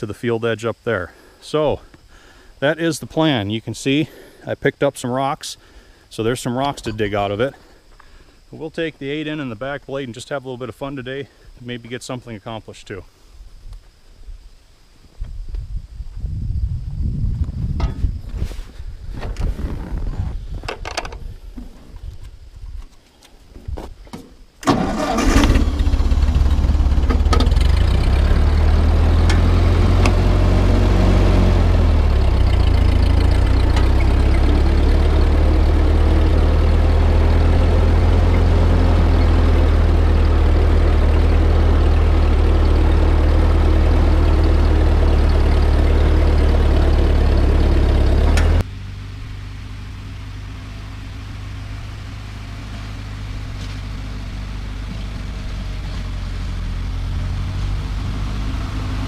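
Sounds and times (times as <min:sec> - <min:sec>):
tractor engine cranking and running: 0:24.6 - 0:49.3.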